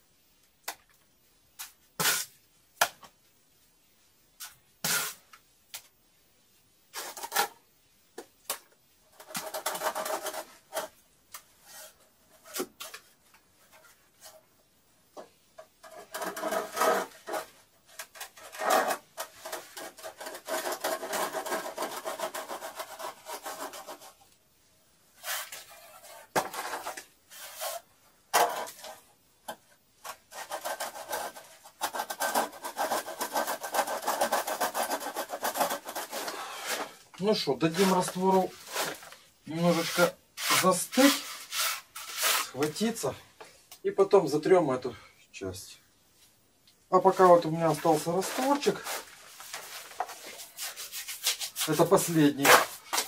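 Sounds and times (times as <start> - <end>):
trowel scraping mortar: 15.8 - 24.2, 25.2 - 29.0, 30.1 - 37.0, 37.6 - 42.8, 47.7 - 53.0.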